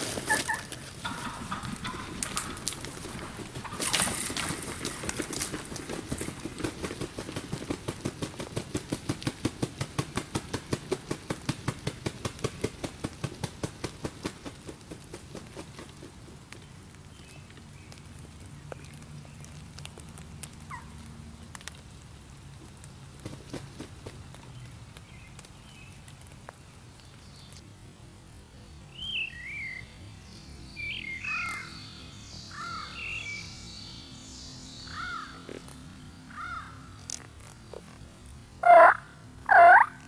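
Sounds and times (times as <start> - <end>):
footsteps crunching through dry leaves: 0.0 - 6.4
bird wings flopping on ground: 0.0 - 21.8, 22.7 - 26.6.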